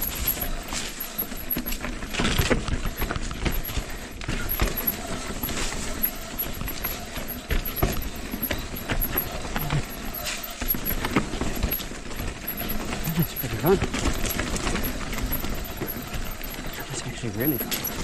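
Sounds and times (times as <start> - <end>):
bike knocking and rattling: 0.0 - 18.0
tyres crunching over loose stones: 0.0 - 18.0.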